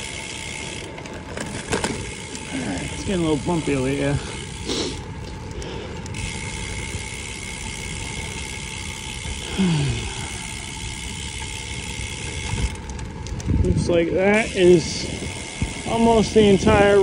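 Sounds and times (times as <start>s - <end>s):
bike tyres rumbling: 0.0s - 17.0s
wind noise: 12.2s - 17.0s.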